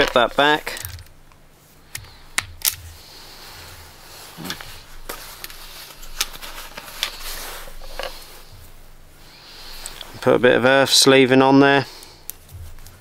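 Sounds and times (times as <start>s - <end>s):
wire strippers clicking: 0.0s - 3.0s
wire handling noise: 0.0s - 8.8s, 9.6s - 10.3s, 12.0s - 13.0s.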